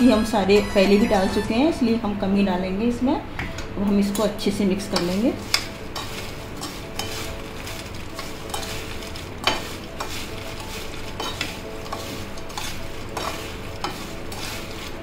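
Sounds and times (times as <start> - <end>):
fried corn kernels rattling: 5.3 - 15.0.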